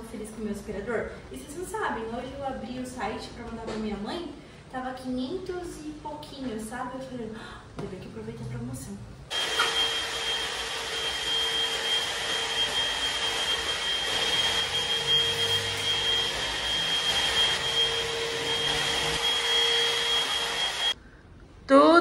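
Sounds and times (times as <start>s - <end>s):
stick vacuum cleaner running: 9.3s - 21.0s.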